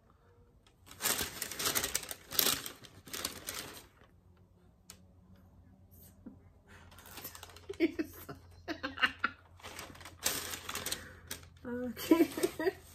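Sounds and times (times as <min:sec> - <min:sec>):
crinkly packaging rustling: 0:00.6 - 0:04.2, 0:06.9 - 0:08.0, 0:09.5 - 0:12.9.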